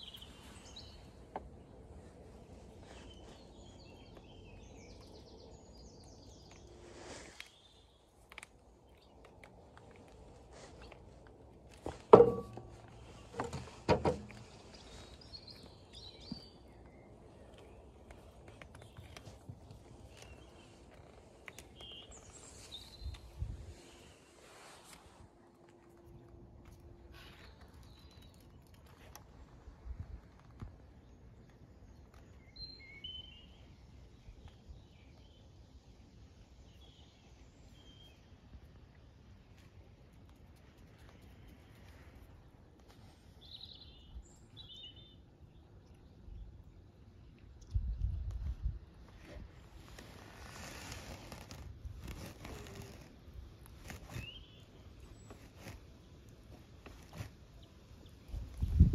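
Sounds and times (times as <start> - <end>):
sharp knock: 12.1 - 12.7
faint bird chirps: 31.8 - 35.6.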